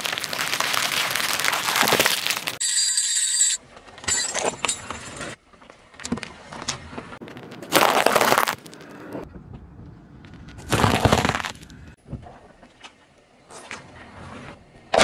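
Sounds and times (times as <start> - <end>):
plastic crackling: 0.0 - 2.6
tyre crushing hard candy: 0.0 - 2.6, 7.2 - 8.9, 10.6 - 11.7.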